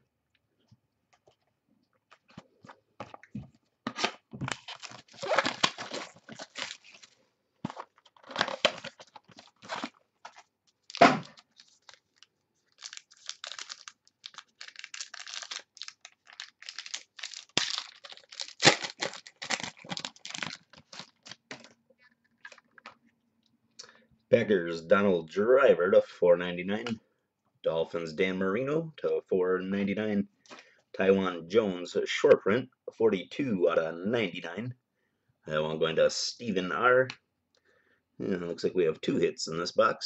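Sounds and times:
wrapping torn and crinkled: 0:04.0 - 0:07.2, 0:07.8 - 0:21.7.

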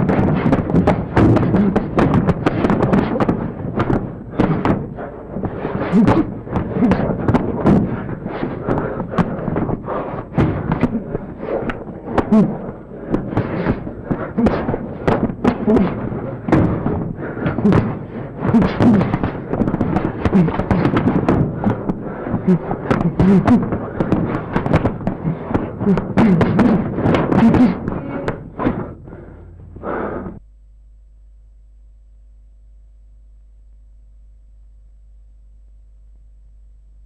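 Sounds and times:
clatter of sharp knocks: 0:00.0 - 0:29.0
low thuds: 0:00.0 - 0:30.5.

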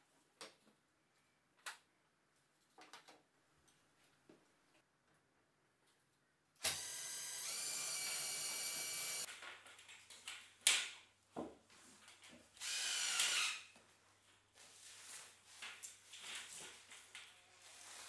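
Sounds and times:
cordless drill whine: 0:06.6 - 0:09.3, 0:12.6 - 0:13.6.

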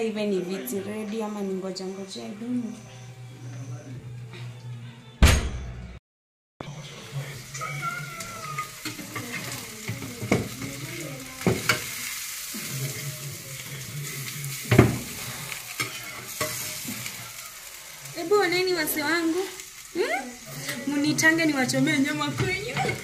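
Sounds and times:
oven door clunk: 0:05.2 - 0:05.8
meat sizzling in hot fat: 0:06.6 - 0:23.0.

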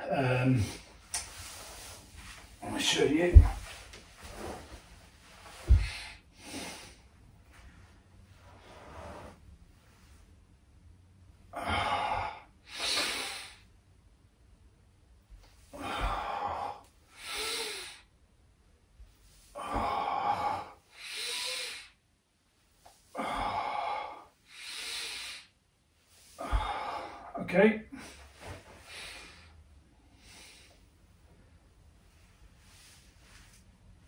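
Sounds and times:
man breathing hard: 0:05.5 - 0:07.2, 0:15.6 - 0:18.1, 0:19.5 - 0:22.0, 0:23.1 - 0:25.5, 0:26.2 - 0:31.0.

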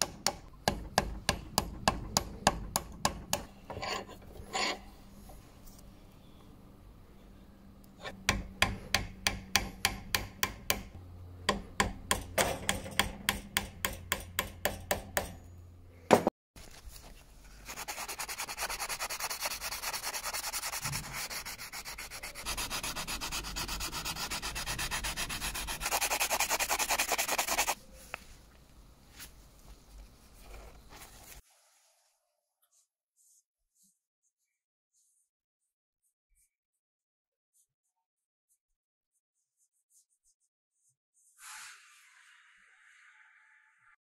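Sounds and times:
sandpaper rubbing on wood: 0:17.6 - 0:27.8.

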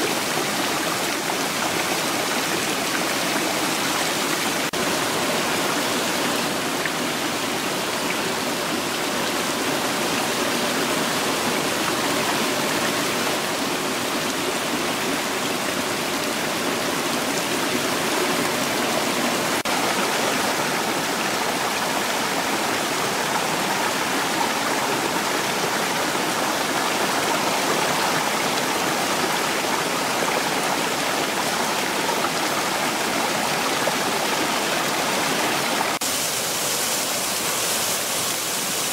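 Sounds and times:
fountain water splashing: 0:35.0 - 0:38.9.

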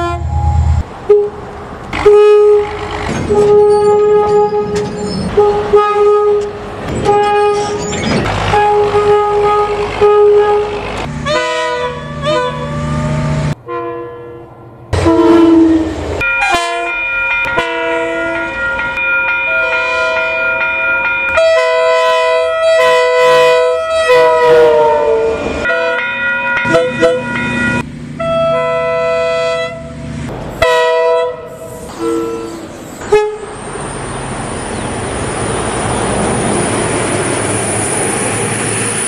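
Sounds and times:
single-note train horn toots: 0:00.0 - 0:01.4, 0:02.0 - 0:07.8, 0:08.5 - 0:18.5, 0:21.4 - 0:26.0, 0:26.6 - 0:30.0, 0:30.6 - 0:33.5
multi-note chime train horn: 0:15.0 - 0:20.6, 0:21.3 - 0:29.9.

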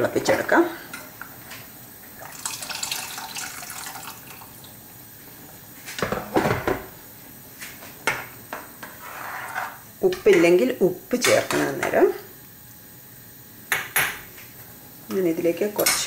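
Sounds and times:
water pouring into a pot: 0:02.2 - 0:04.8.

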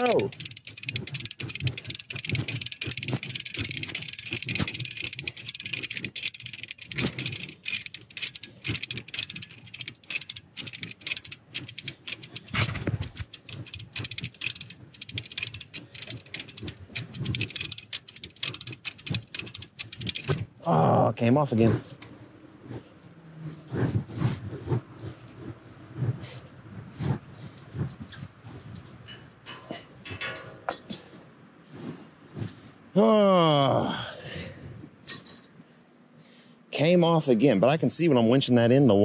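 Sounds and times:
winch ratchet clicking: 0:00.0 - 0:20.6.

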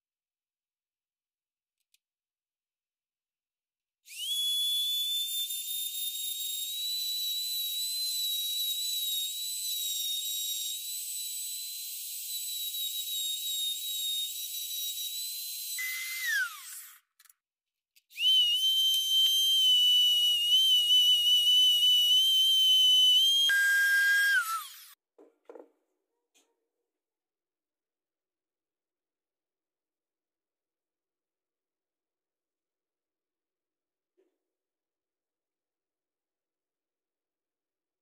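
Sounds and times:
rotary tool high whine: 0:05.1 - 0:17.1, 0:18.2 - 0:25.0.

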